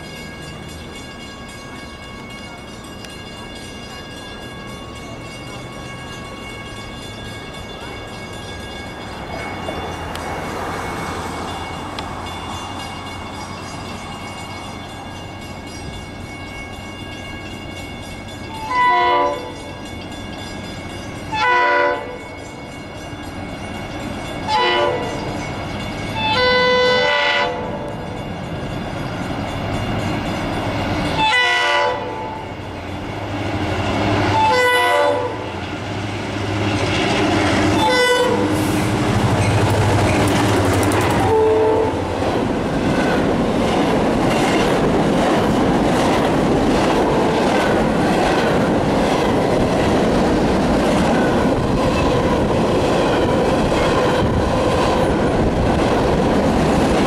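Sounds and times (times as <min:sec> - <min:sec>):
locomotive air horn blasts: 0:18.6 - 0:19.6, 0:21.3 - 0:22.2, 0:24.5 - 0:25.3, 0:26.2 - 0:27.9, 0:31.2 - 0:32.4, 0:34.3 - 0:35.5, 0:37.8 - 0:39.0, 0:41.2 - 0:42.1.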